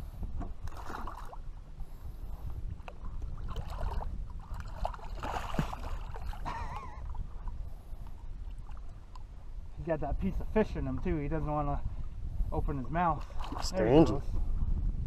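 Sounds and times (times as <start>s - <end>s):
fish thrashing in water: 3.3s - 6.4s.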